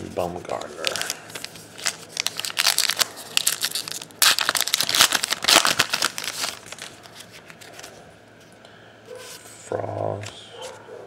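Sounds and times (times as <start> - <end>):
wrapper crinkling: 0.5 - 8.0.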